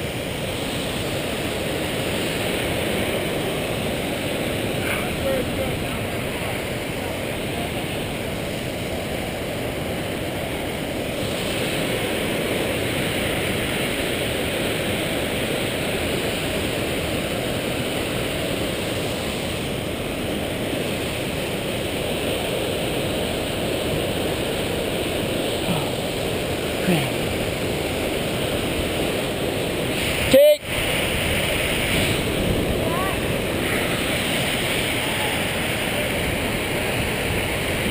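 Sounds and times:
waterfall and creek rushing: 0:00.0 - 0:37.9.

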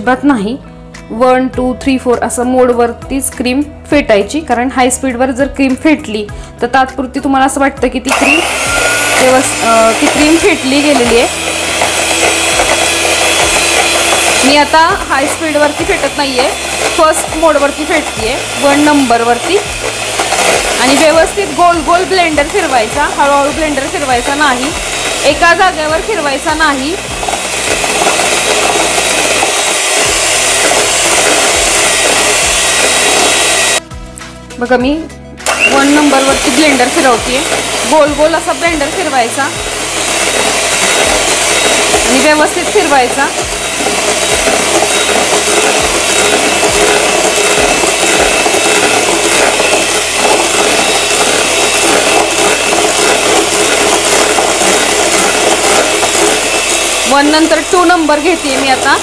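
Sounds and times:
electric hand mixer whisking: 0:08.1 - 0:33.9, 0:35.4 - 0:59.0.

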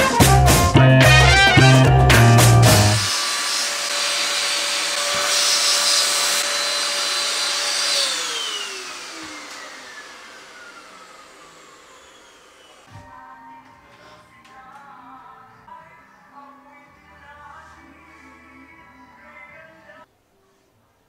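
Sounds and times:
electric appliance motor whining: 0:02.7 - 0:12.9.

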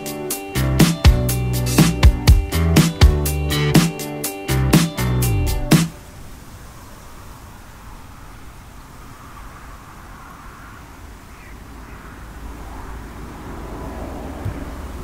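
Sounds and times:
rustling vegetation: 0:05.4 - 0:15.0
wind buffeting microphone: 0:05.5 - 0:15.0.

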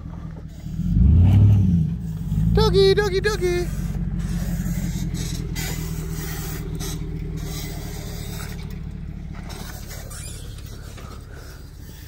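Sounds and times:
vehicle engine idling: 0:00.0 - 0:12.0.

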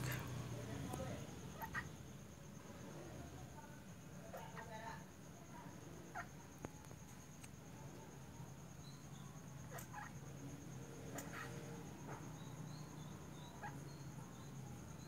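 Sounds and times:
insect trill: 0:00.0 - 0:15.0.

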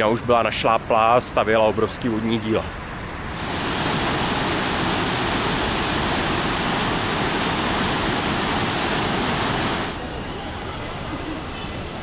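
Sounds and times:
river water rushing: 0:03.1 - 0:10.1.

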